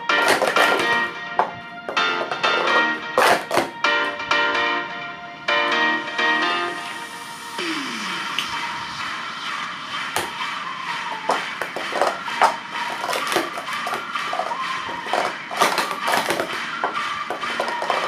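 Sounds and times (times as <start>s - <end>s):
plastic cups clacking: 0.0s - 3.7s, 11.0s - 18.0s
background music: 0.0s - 18.0s.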